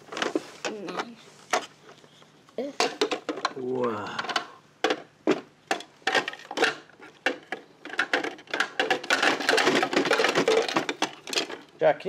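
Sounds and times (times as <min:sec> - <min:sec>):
plastic toys clattering: 0:00.0 - 0:12.0.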